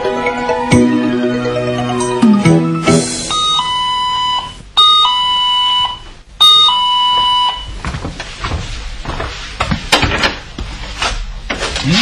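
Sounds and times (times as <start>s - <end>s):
clattering and shuffling: 7.7s - 11.9s.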